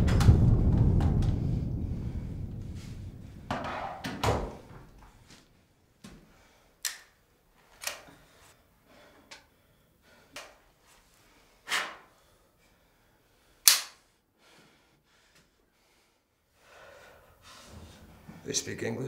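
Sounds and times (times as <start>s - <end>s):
sharp smacks: 13.7s - 14.0s.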